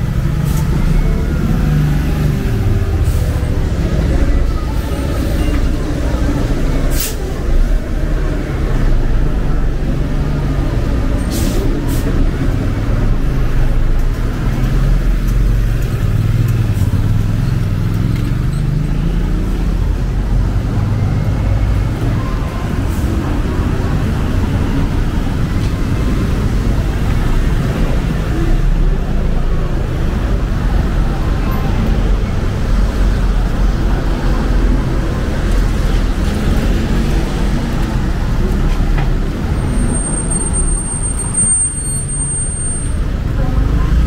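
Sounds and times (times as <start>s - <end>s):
engine rising in pitch: 0.0s - 6.8s
road traffic passing: 0.0s - 44.0s.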